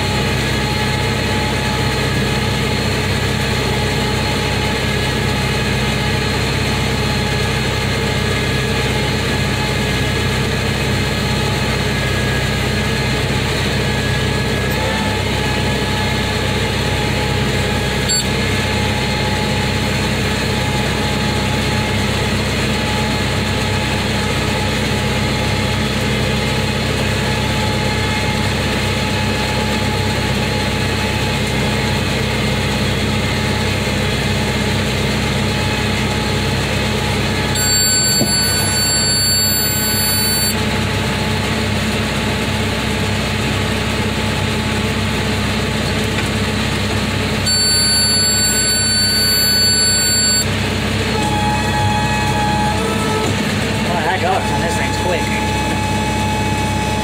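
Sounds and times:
tractor engine running: 0.0 - 57.0
baler machinery turning: 43.5 - 57.0.

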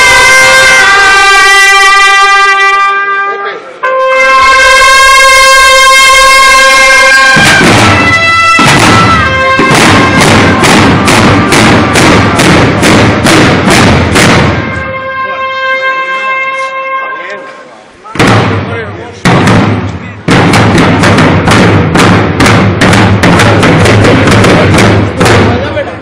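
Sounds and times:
bugles holding long note: 0.0 - 18.8
drums beating steadily: 5.5 - 15.2, 18.1 - 26.0.

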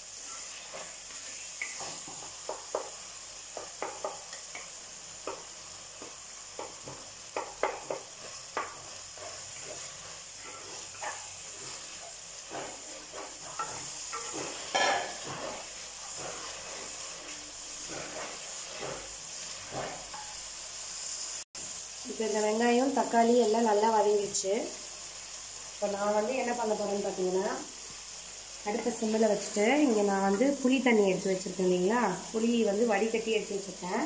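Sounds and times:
food sizzling in oil: 0.0 - 34.0
wooden spatula scraping pot: 6.6 - 20.3.

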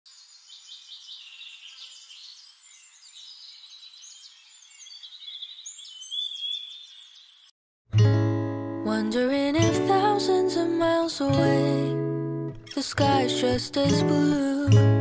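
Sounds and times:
small birds chirping and singing: 0.1 - 7.5.

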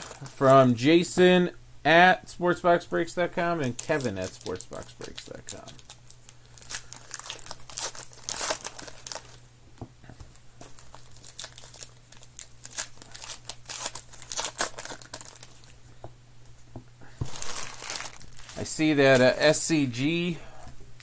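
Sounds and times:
card pack wrappers crinkling: 0.0 - 0.7, 3.6 - 9.4, 10.6 - 15.8, 17.2 - 19.5.

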